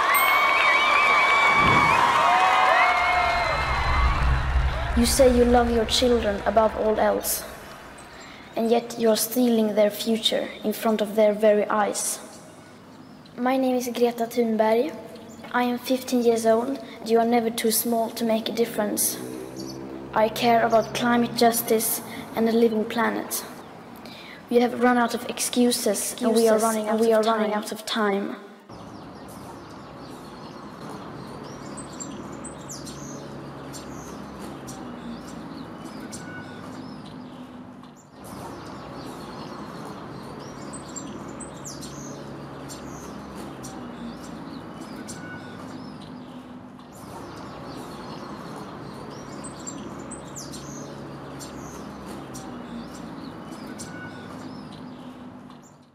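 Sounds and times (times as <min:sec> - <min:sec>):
steady background hum: 0:00.0 - 0:55.8
birds chirping: 0:00.0 - 0:55.9.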